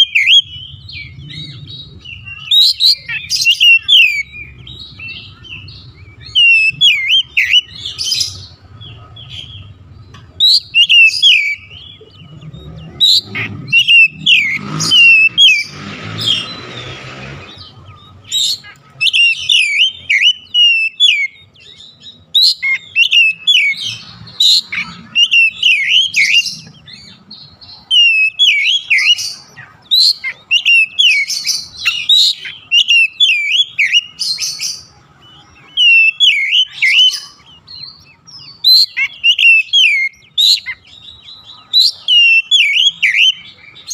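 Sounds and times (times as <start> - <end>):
bird singing whistled notes: 0.0 - 43.9.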